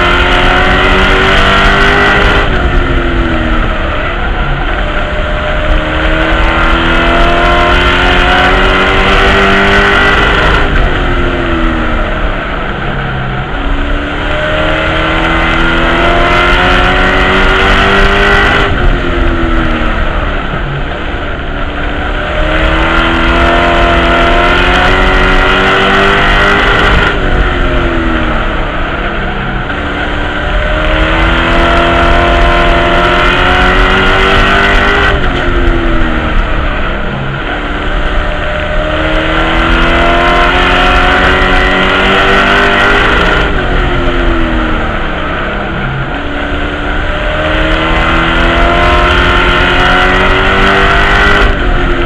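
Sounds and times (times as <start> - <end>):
race truck engine revving: 0.0 - 52.0
wind and tyre noise: 0.0 - 52.0.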